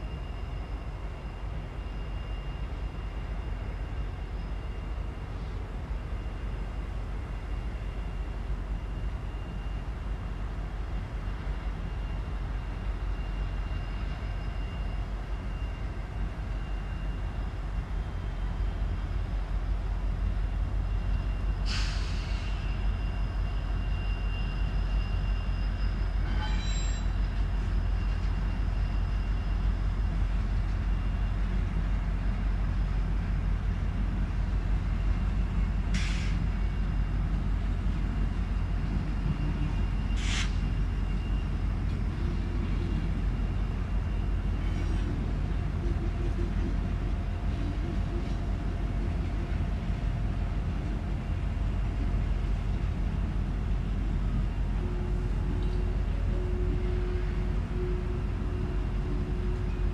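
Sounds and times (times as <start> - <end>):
train rumbling past: 0.0 - 59.9
high wheel squeal: 20.9 - 30.2
short hisses: 40.2 - 40.6.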